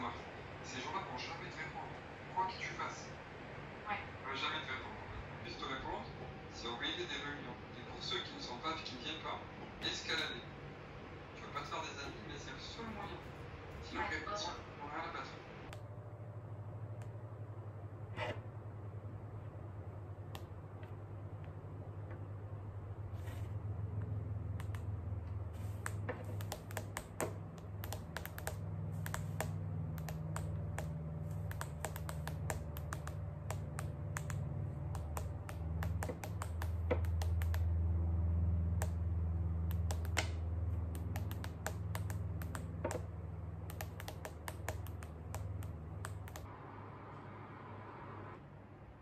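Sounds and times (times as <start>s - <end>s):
steady low hum: 0.0s - 49.0s
fingernails tapping on touchscreen: 25.6s - 37.7s, 39.7s - 46.5s.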